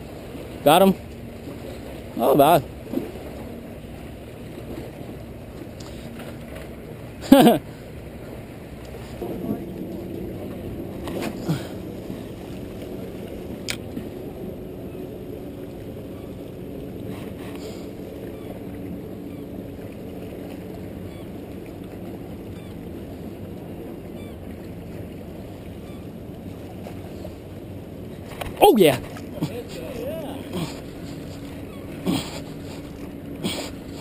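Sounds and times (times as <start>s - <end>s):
wind: 0.0s - 34.0s
water rushing at rocks: 28.1s - 34.0s.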